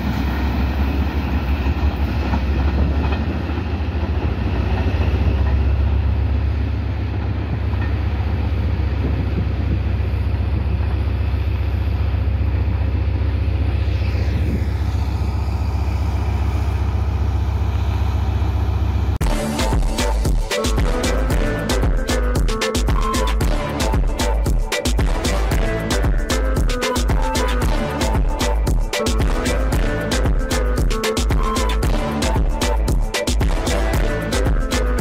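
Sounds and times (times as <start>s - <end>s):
passing train: 0.0s - 35.0s
wind buffeting microphone: 7.0s - 13.0s.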